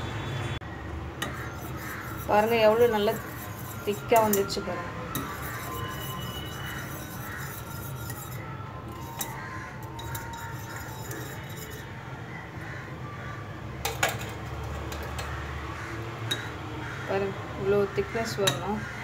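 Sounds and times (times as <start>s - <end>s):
spoon stirring and scraping saucepan: 1.2s - 11.9s.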